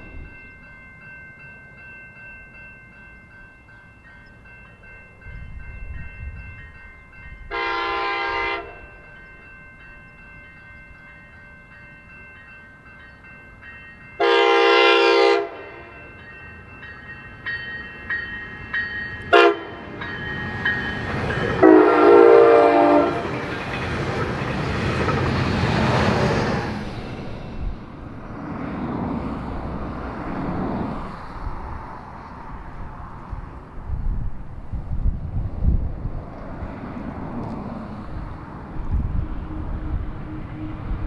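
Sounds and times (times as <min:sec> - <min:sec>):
crossing bells ringing: 0:00.0 - 0:28.4, 0:37.7 - 0:41.0
locomotive horn blasts: 0:07.5 - 0:09.0, 0:14.2 - 0:16.0, 0:19.3 - 0:19.9, 0:21.6 - 0:23.4, 0:38.9 - 0:41.0
train rushing past: 0:13.2 - 0:41.0.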